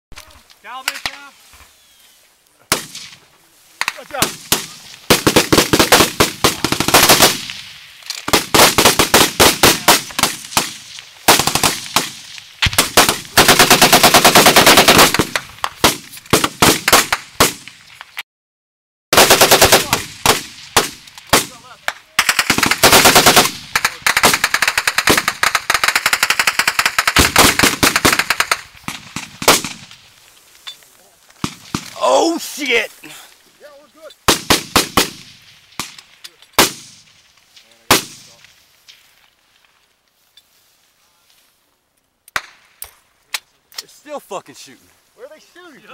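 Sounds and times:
sharp cracks of incoming rounds: 2.7 - 3.2, 3.8 - 18.1, 19.1 - 30.1, 31.4 - 32.9, 34.2 - 39.1
automatic gunfire bursts: 4.2 - 7.5, 8.3 - 12.2, 12.8 - 15.4, 19.2 - 21.5, 22.2 - 29.8.

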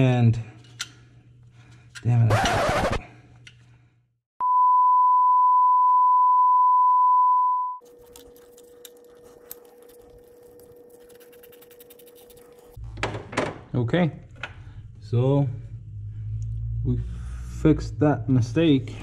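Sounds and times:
loud steady beep: 4.4 - 7.8.

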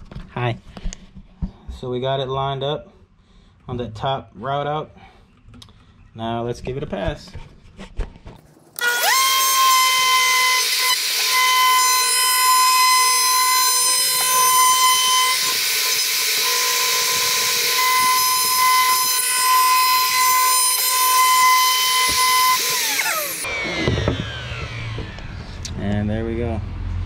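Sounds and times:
router whining: 8.8 - 25.8.

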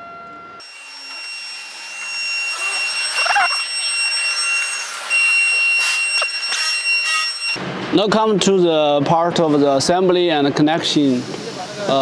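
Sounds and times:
high-pitched mechanical whine: 0.0 - 7.6
short wavering squeak: 0.0 - 7.6.

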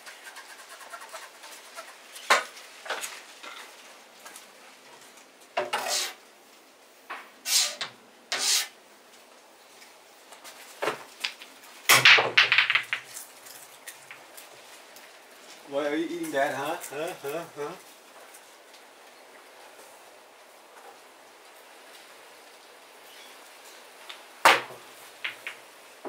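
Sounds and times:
short knocks and scrapes: 5.6 - 6.2, 7.5 - 8.7
pool balls clacking: 10.8 - 13.2, 24.1 - 25.8.

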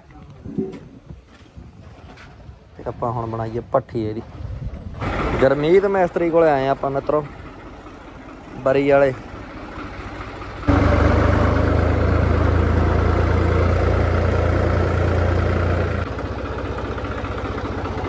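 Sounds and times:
tractor diesel engine running: 4.8 - 18.0.

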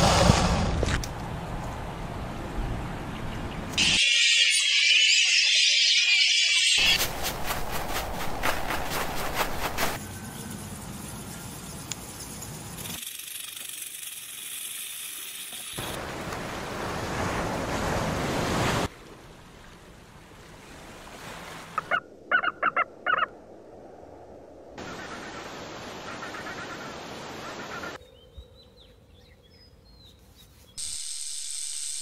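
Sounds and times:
surf-like water noise: 15.5 - 22.3, 24.7 - 28.0.

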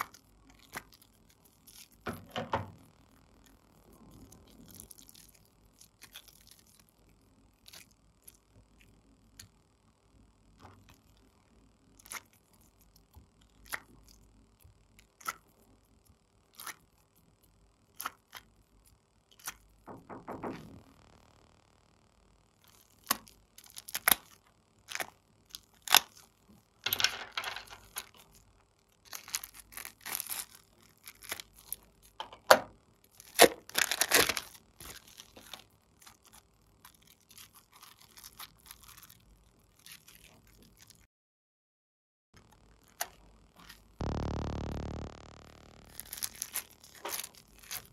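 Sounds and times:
slime crackling: 44.0 - 47.9.

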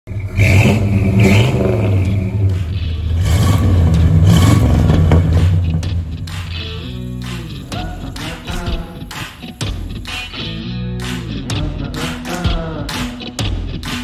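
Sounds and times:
car engines revving: 0.1 - 11.3.

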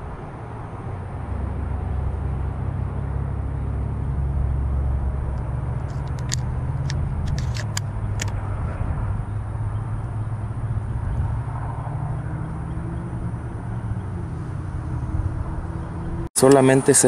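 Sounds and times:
shells clicking into shotgun: 5.9 - 8.3.

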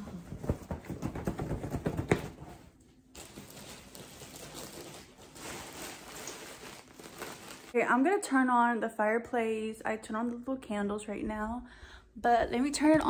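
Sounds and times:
fabric rustling: 0.0 - 7.8.

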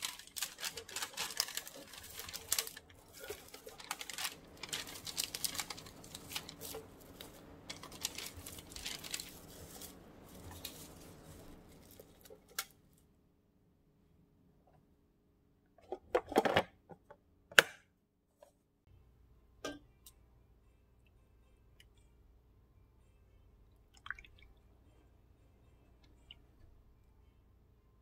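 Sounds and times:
plastic packets crinkling: 0.0 - 12.7.

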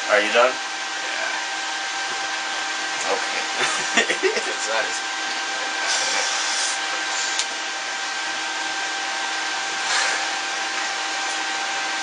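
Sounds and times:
mechanical whir and hiss: 3.0 - 7.6.

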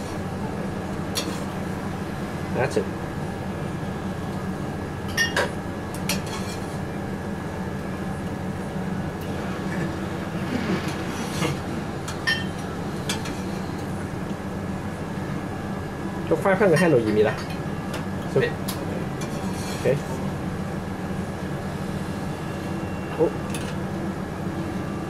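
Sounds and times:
kitchen ventilation drone: 0.0 - 25.0.

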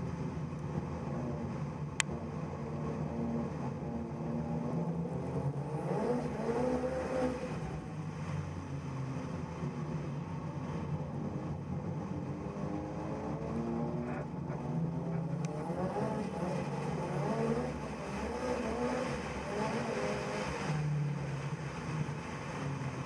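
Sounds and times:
car engine revving: 0.0 - 23.0.

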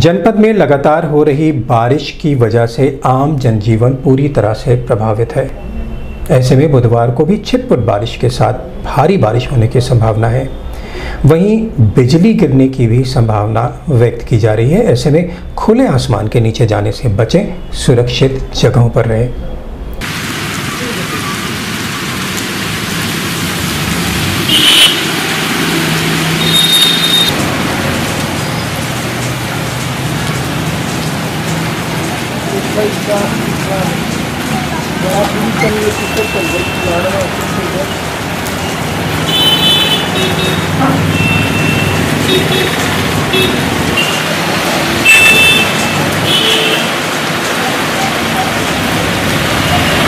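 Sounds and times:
tyres on wet road: 0.0 - 50.0
steady rain: 0.2 - 17.3, 19.9 - 50.0
tyre hiss on wet road: 10.8 - 11.2, 20.0 - 29.4
vehicle engine passing: 20.7 - 35.6
short high horn beeps: 26.4 - 27.3.

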